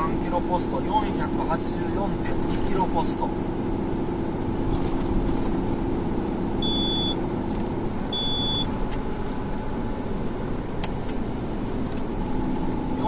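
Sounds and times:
car road and engine noise: 0.0s - 13.0s
short high beeps: 6.6s - 7.2s, 8.1s - 8.7s.

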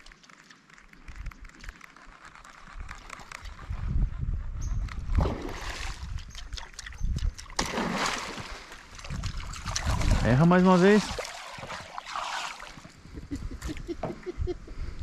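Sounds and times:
small ticks: 0.0s - 3.8s, 6.0s - 7.6s
lure splashing on water: 5.1s - 13.0s.

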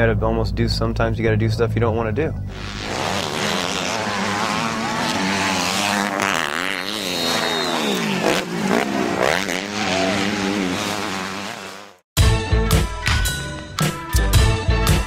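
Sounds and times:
motocross bike engine revving: 2.5s - 12.0s.

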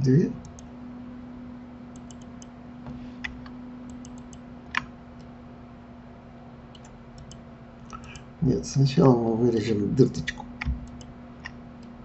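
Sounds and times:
low electrical hum: 0.0s - 12.0s
computer mouse clicks: 1.9s - 2.5s, 3.2s - 5.3s, 6.7s - 8.3s, 10.6s - 11.9s.

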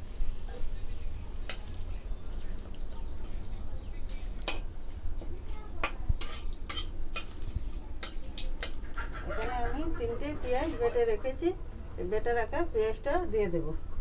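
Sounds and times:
metal spatula scraping a pan: 6.2s - 8.8s.

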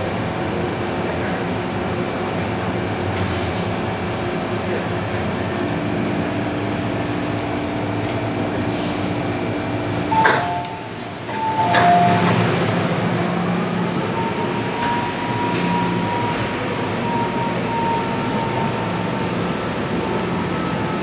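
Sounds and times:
train rolling and braking: 0.0s - 21.0s
two-note door chime: 11.4s - 12.4s.

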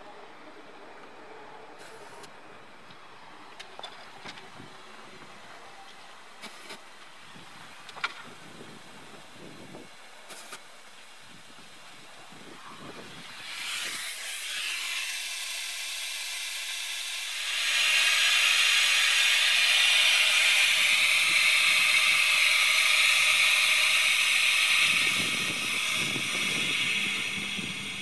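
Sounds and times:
compressed air hissing: 12.9s - 28.0s.

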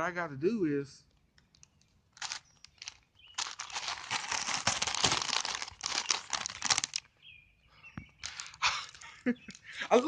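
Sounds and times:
chip bag crinkling: 1.5s - 7.1s.

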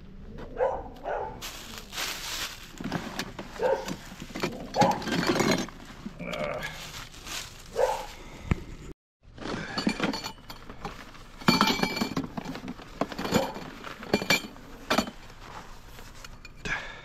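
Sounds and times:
dog barking: 0.5s - 1.4s, 3.6s - 3.9s, 4.8s - 5.0s, 7.7s - 8.1s
rustling of fabric and plastic: 1.4s - 8.2s, 9.3s - 16.4s.

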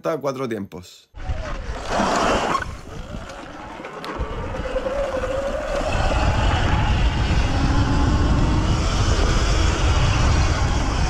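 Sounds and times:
motorcycle engine running hard: 5.9s - 11.0s.

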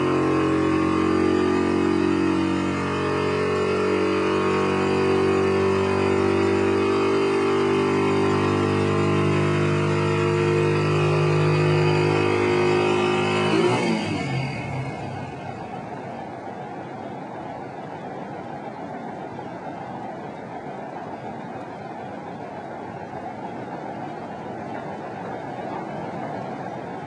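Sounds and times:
engine running: 0.0s - 27.0s
rushing noise: 13.5s - 27.0s.

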